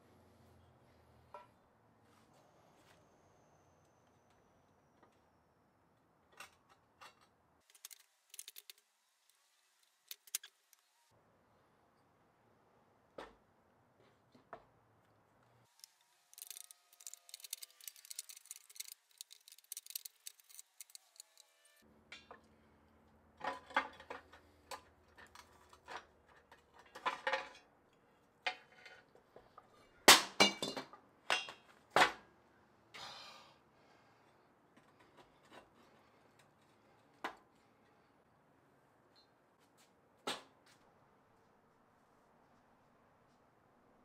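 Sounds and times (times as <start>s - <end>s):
metal parts rattling: 7.6s - 8.8s, 9.9s - 10.5s, 15.8s - 21.5s.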